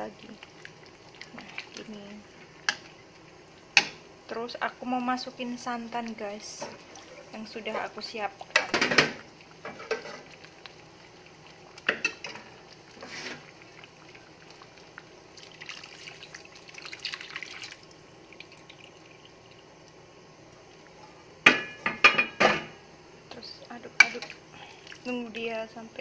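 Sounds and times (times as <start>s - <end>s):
liquid pouring into pot: 0.0s - 3.9s, 6.7s - 20.0s.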